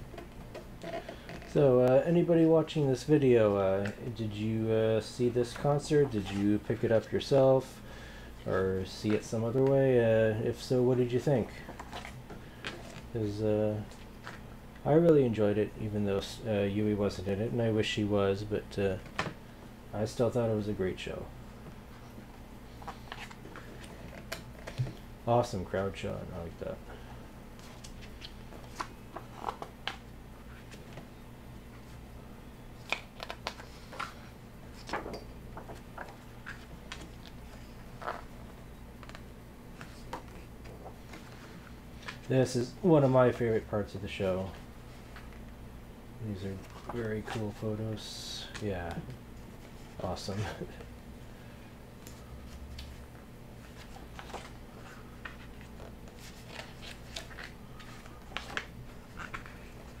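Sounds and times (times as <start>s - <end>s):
low steady hum: 0.0s - 60.0s
book pages turning: 22.8s - 24.9s, 27.6s - 31.0s, 32.8s - 38.3s, 39.0s - 42.3s, 46.5s - 47.8s, 52.0s - 60.0s.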